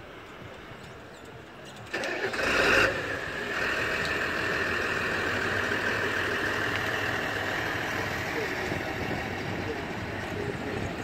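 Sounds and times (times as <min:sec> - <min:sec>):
tractor diesel engine idling: 0:01.9 - 0:11.0.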